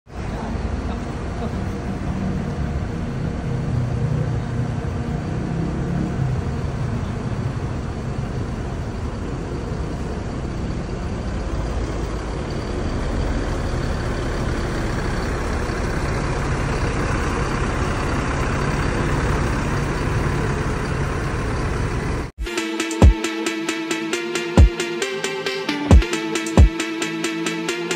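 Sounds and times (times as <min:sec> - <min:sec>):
bus diesel engine running: 0:00.1 - 0:22.4.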